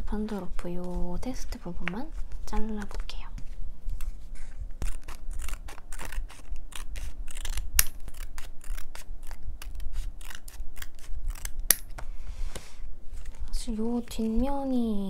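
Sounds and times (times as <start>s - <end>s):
scissors snipping paper: 4.8s - 11.9s.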